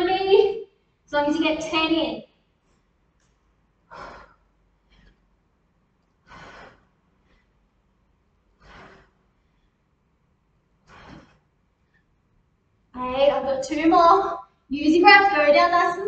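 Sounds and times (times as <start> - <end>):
woman breathing hard: 3.8 - 5.4, 6.1 - 7.8, 8.4 - 9.8, 10.8 - 11.8.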